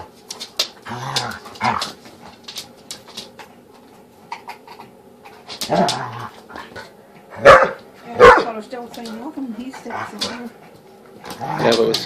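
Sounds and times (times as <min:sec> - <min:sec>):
dogs play fighting scuffles: 0:00.0 - 0:04.2
dog growling: 0:00.8 - 0:02.0, 0:04.3 - 0:07.5, 0:09.6 - 0:10.6, 0:11.2 - 0:12.0.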